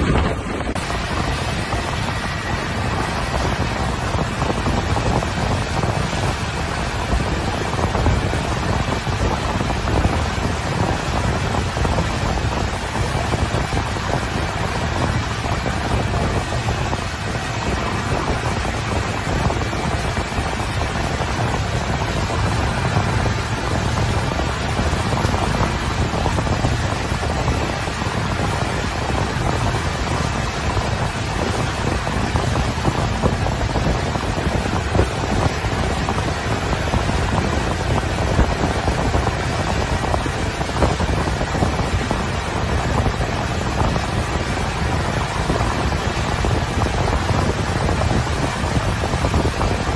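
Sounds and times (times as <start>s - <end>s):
boat motor: 0.0s - 49.9s
water noise: 0.0s - 49.9s
wind buffeting microphone: 0.0s - 49.9s.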